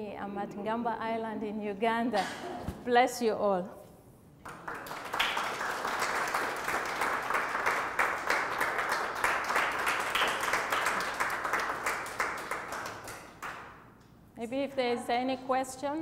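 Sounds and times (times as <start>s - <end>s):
audience applauding: 4.4s - 13.6s.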